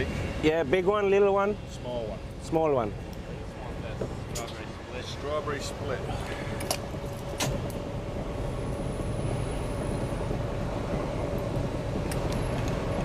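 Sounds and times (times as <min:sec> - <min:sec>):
van engine rumbling: 0:00.0 - 0:13.0.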